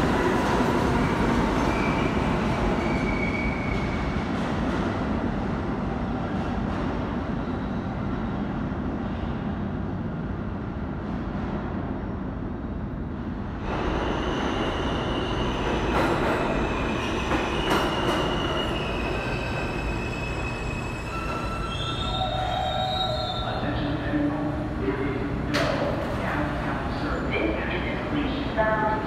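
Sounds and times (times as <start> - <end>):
subway train rumbling: 0.0 - 29.0
train brakes squealing: 1.6 - 4.2, 13.9 - 23.7.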